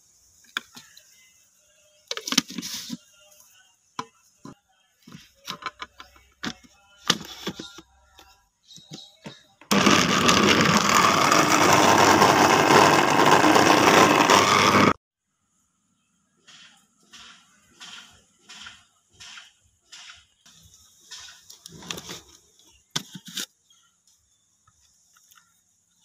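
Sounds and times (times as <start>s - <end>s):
electric blender running: 9.7s - 15.0s.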